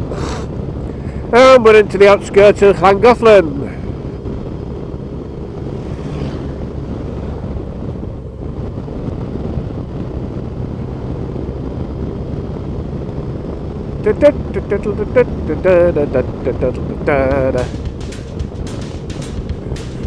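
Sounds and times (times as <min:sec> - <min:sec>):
wind noise on microphone: 0:06.5 - 0:15.1
motorcycle engine running: 0:13.3 - 0:20.0.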